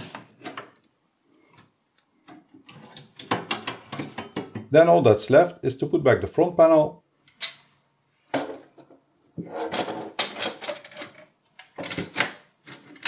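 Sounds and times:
clattering and scraping: 0:08.3 - 0:13.0.

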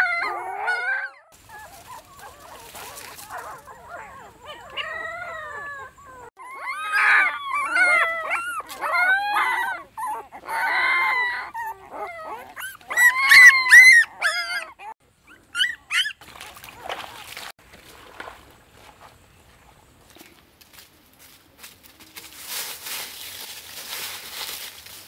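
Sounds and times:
puppy whimpering and crying: 0:00.0 - 0:16.2
footsteps sloshing through water: 0:16.1 - 0:19.8.

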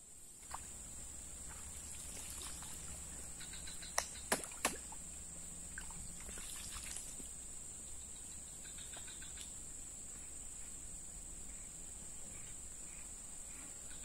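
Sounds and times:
pond water splashing and trickling: 0:00.3 - 0:07.5.

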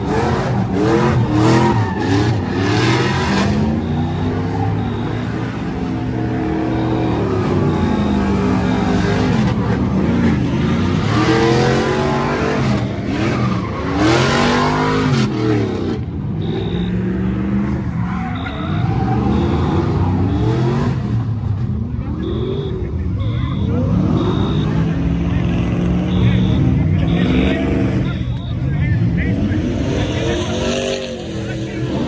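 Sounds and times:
car engines revving: 0:00.0 - 0:32.0.

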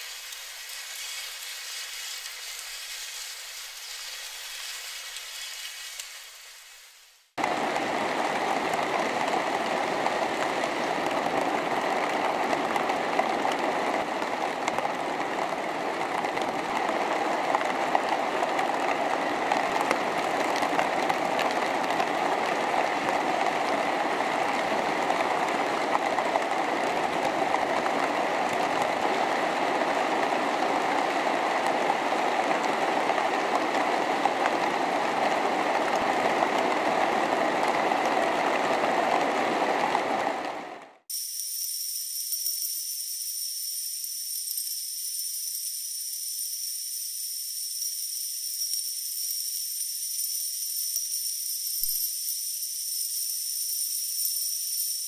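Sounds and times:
faint hiss: 0:00.0 - 0:07.3.

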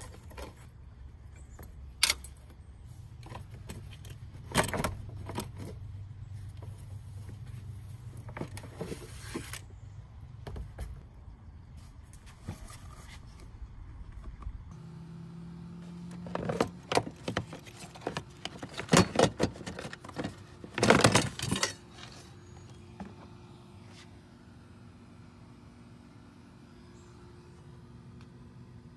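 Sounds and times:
sharp knocks and rattles: 0:16.2 - 0:22.2.

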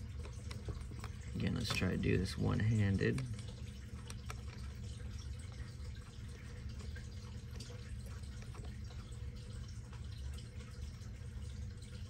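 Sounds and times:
faint clicks and scrapes: 0:00.0 - 0:02.1, 0:03.0 - 0:10.1
low room hum: 0:00.0 - 0:12.0.

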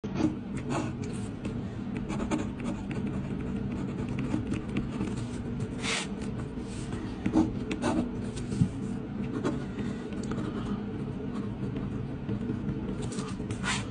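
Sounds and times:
ballpoint pen scratching on paper: 0:00.2 - 0:08.5.

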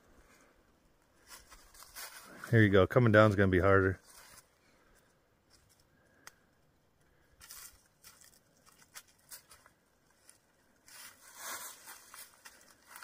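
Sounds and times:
dry leaves crunching and rustling: 0:01.2 - 0:02.4, 0:07.4 - 0:13.0.

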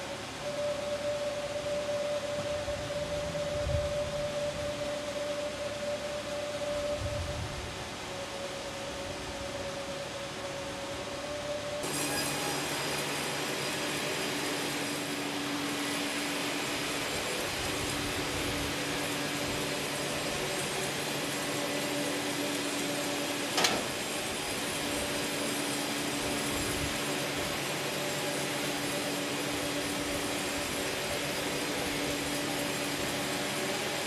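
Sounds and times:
steady machine hum: 0:00.0 - 0:34.0
band saw cutting a log: 0:11.8 - 0:34.0.

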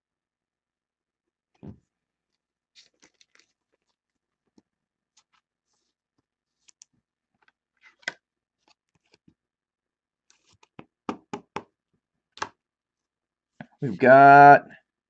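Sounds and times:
trading cards rustling and clicking: 0:02.8 - 0:04.0, 0:06.6 - 0:09.3, 0:10.3 - 0:10.8.

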